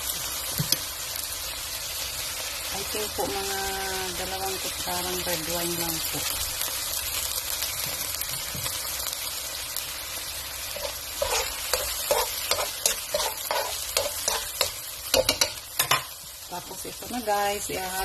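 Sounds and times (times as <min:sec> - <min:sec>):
sauce sizzling in a wok: 0:00.0 - 0:18.0
spoon stirring and scraping: 0:10.7 - 0:16.1.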